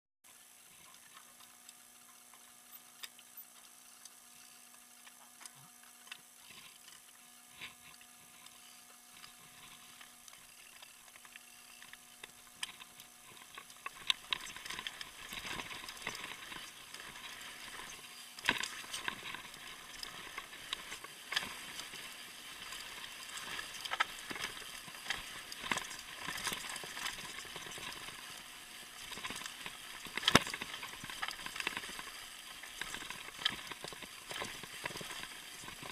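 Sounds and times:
bike rattling and knocking: 29.1 - 32.0.

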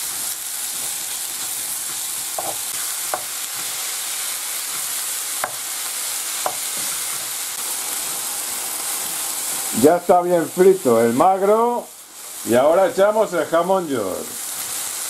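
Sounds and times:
meat sizzling in oil: 0.0 - 15.0
wooden spoon knocking pan: 2.4 - 3.4.

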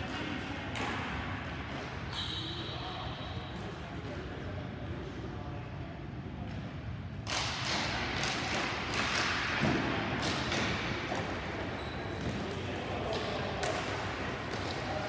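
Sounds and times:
hockey sticks and ball clacking: 0.0 - 2.4, 7.2 - 15.0.

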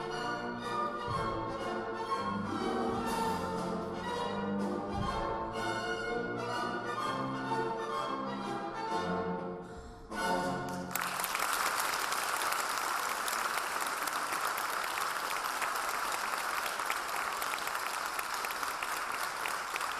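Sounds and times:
orchestral music: 0.0 - 11.2
audience applause: 10.8 - 19.9.

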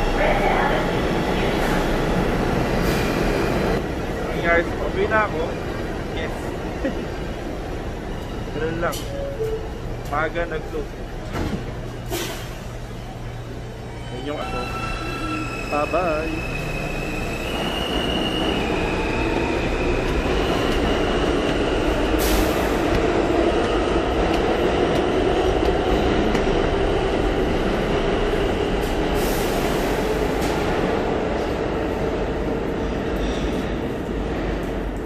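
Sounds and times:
train wheels rumbling on rail: 9.9 - 35.0.

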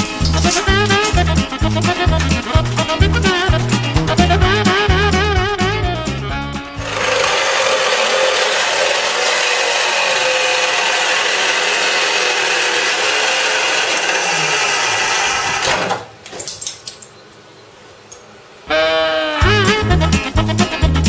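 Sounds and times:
wall chaser grinding brick: 0.0 - 5.1, 6.7 - 16.0.

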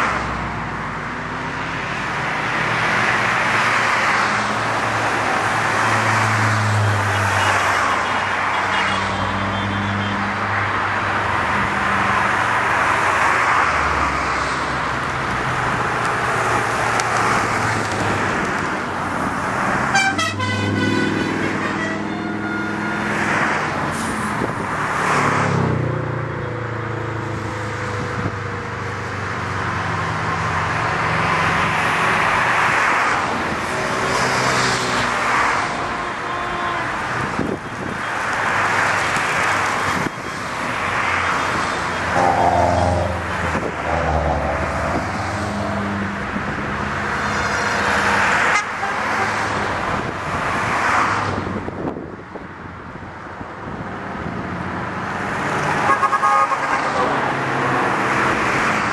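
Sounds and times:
vehicles passing on road: 0.0 - 58.9
vehicle horn tooting: 19.9 - 23.2, 35.4 - 37.0, 42.1 - 43.3, 48.5 - 49.4, 55.8 - 57.1.

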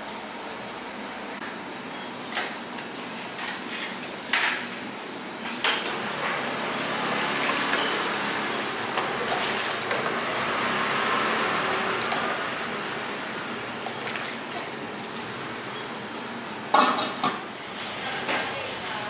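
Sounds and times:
metal pots clanking: 16.7 - 17.4.

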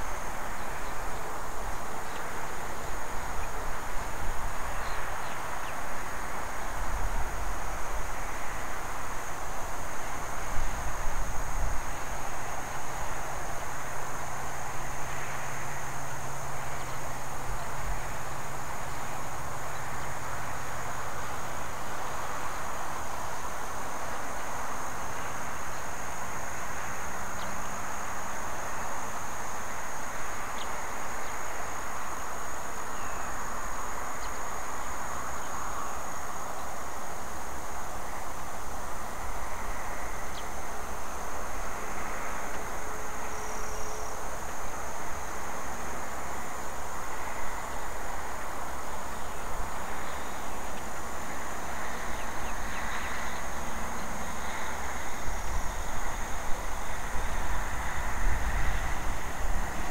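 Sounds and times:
constant even hiss: 0.0 - 59.9
high-pitched insect drone: 0.0 - 59.9
faint ticks: 42.5 - 42.7, 50.7 - 50.9.

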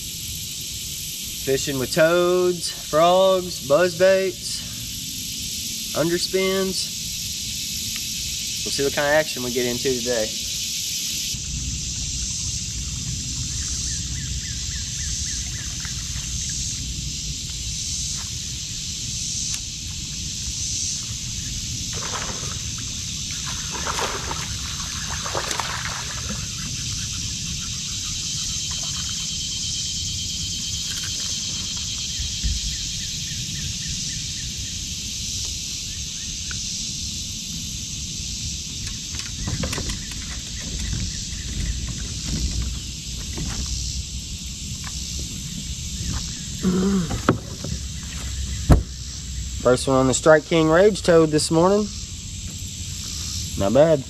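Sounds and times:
insects droning: 0.0 - 54.0
water splashes: 21.9 - 26.9, 28.6 - 29.6.

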